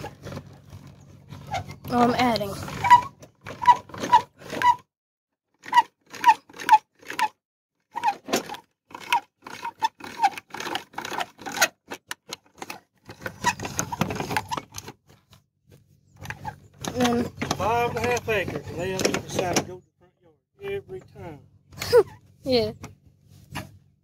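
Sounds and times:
trailer jack crank squeaking: 0.0 - 4.9, 5.6 - 15.3, 16.1 - 19.8.

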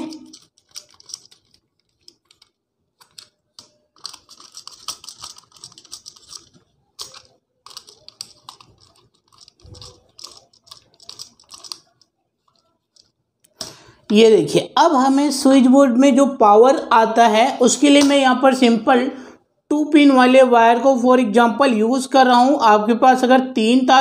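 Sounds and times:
screwdriver clicking and scraping: 0.0 - 13.2.

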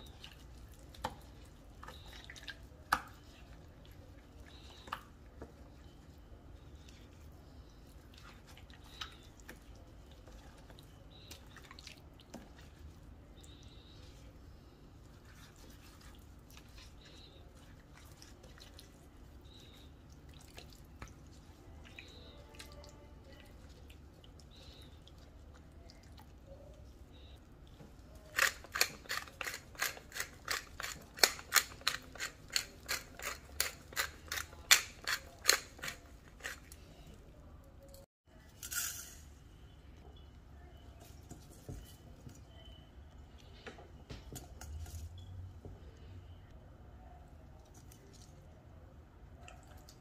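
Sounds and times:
wet fish handling sounds: 0.0 - 33.2
pepper mill grinding: 28.3 - 36.7.

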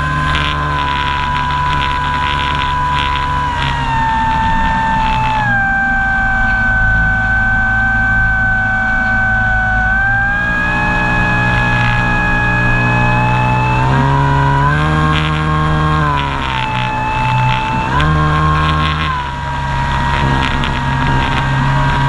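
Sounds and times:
model airplane motor and propeller: 0.0 - 22.0.

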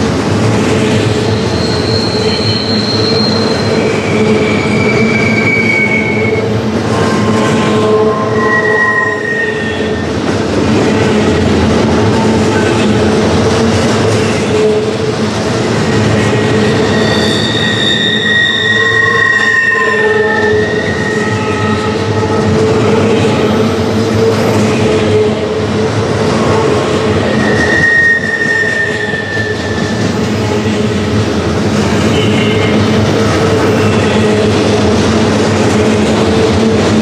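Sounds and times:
train wheels rumbling and clattering: 0.0 - 37.0
high-pitched wheel squeal: 1.2 - 10.1, 16.6 - 22.5, 27.2 - 30.2.

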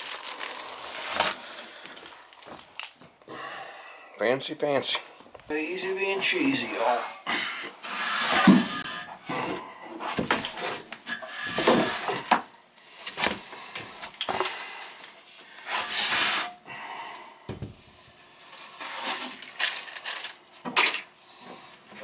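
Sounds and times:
porcelain scraping and rubbing: 7.8 - 9.2.

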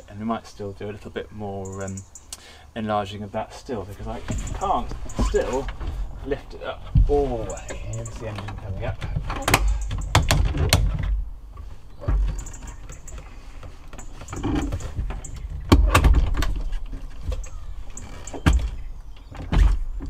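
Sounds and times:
tilt bracket clunks and clicks: 7.0 - 11.2.

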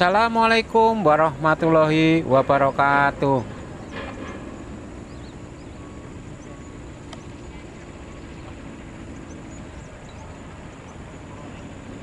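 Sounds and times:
low outdoor rumble: 0.0 - 12.0
small birds chirping: 0.0 - 12.0.

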